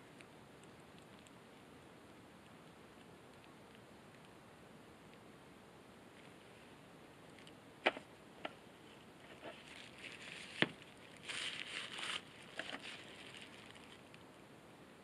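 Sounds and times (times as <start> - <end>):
plastic gloves crinkling: 8.9 - 14.2.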